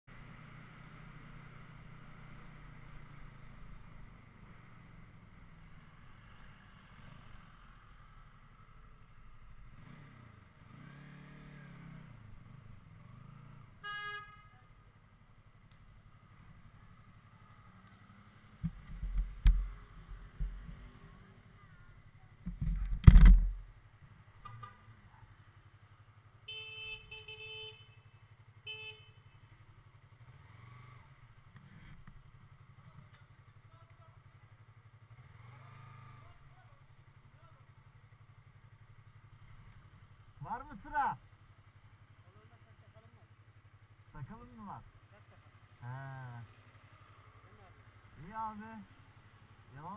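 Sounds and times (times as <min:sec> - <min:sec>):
motorcycle engine running: 0:00.0 - 0:49.9
horn toot: 0:13.8 - 0:14.7, 0:26.5 - 0:28.1.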